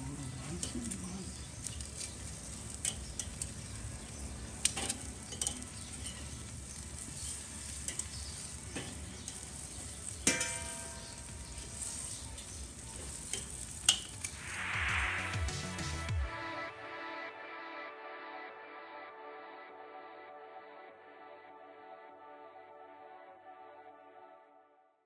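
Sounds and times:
ribs sizzling on grill: 0.0s - 16.0s
tongs clinking against grate: 1.6s - 3.6s, 4.6s - 14.4s.

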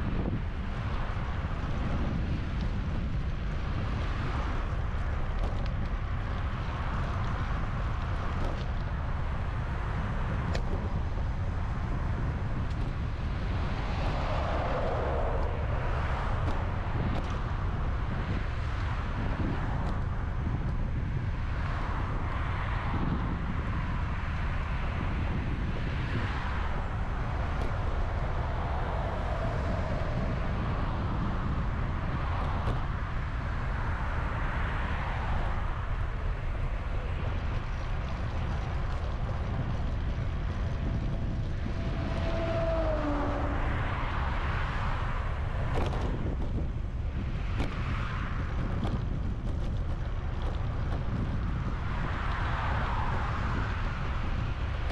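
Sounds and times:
road noise: 0.0s - 54.9s
wind buffeting microphone: 0.0s - 54.9s.

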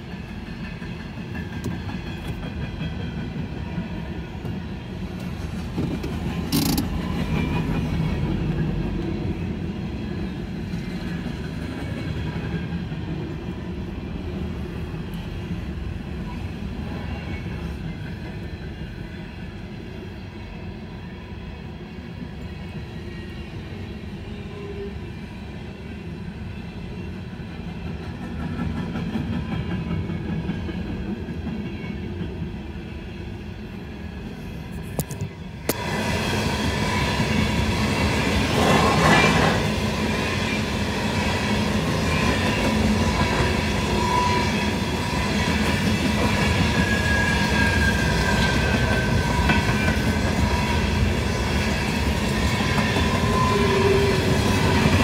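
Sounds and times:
train wheels clattering over rail joints: 5.2s - 8.4s.

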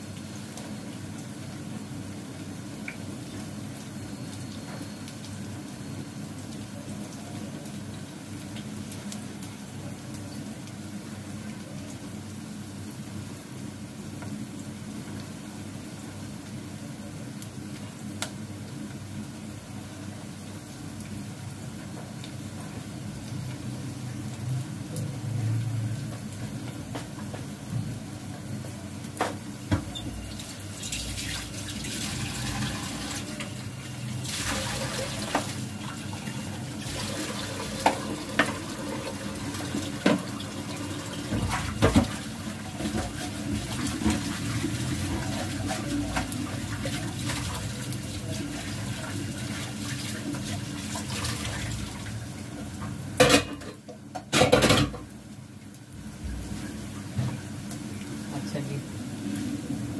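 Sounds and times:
tap water splashing into sink: 34.3s - 35.6s, 36.9s - 44.4s.

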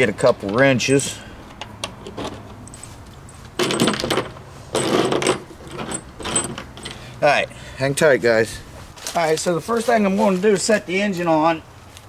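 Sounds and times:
metal tools clinking on metal: 2.1s - 7.1s.

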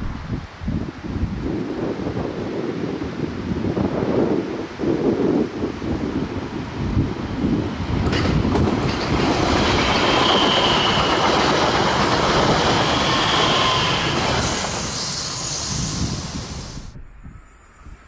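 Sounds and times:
train passing at speed: 6.1s - 18.0s.

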